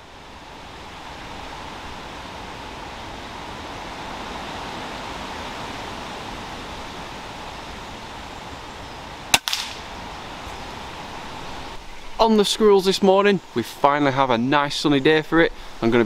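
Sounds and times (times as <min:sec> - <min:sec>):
wind in leaves: 0:00.0 - 0:16.0
air rifle shot crack: 0:09.3 - 0:10.0.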